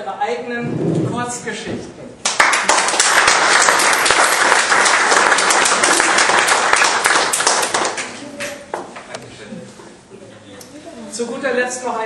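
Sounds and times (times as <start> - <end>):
small audience applauding: 2.2 - 9.1.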